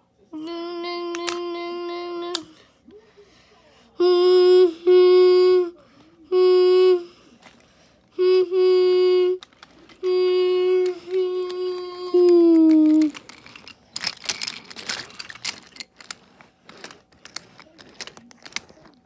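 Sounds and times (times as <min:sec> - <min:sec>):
person imitating train horn: 0:04.0 - 0:07.1, 0:08.2 - 0:09.4.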